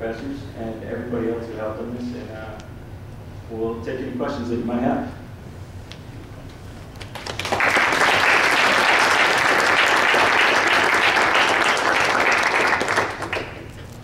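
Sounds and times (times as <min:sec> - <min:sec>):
audience applauding: 0:07.0 - 0:13.7.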